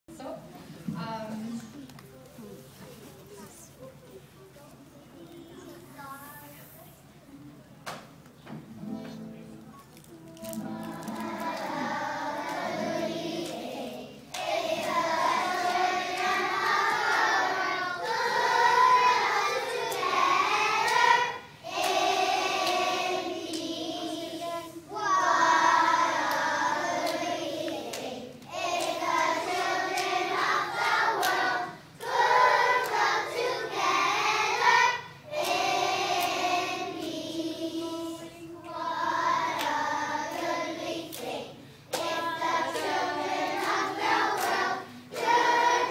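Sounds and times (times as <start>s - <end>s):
children's choir singing: 10.2s - 45.9s.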